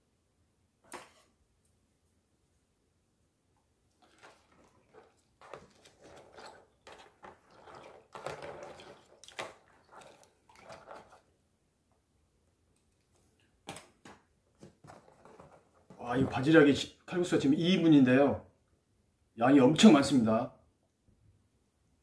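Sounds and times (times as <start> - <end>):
chopsticks stirring noodles: 4.0 - 11.3.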